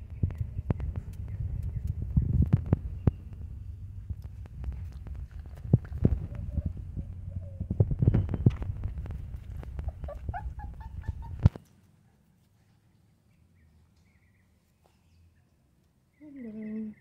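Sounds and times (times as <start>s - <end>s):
low rumble: 0.0s - 11.5s
microphone handling noise: 0.0s - 11.6s.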